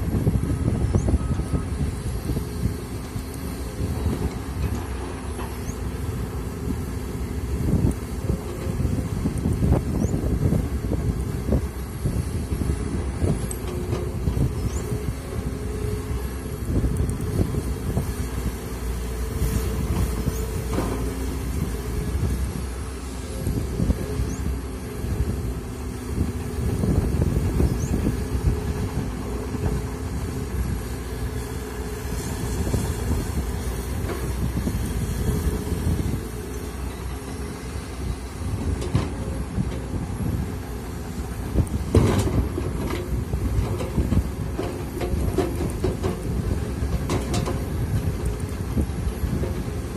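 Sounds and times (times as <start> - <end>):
excavator diesel engine: 0.0 - 49.9
excavator clunk: 13.2 - 15.1, 19.4 - 21.8, 27.9 - 40.1, 41.1 - 49.9.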